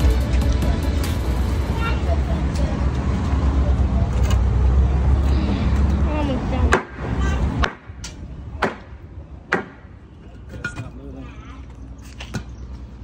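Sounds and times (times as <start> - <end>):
hammer striking wood: 9.5 - 9.8.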